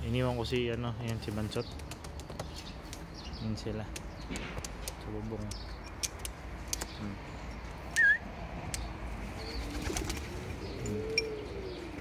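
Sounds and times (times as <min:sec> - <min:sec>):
wavering high chirp: 0:07.9 - 0:08.3
pigeons cooing: 0:09.2 - 0:12.0
wing flaps: 0:09.6 - 0:10.4.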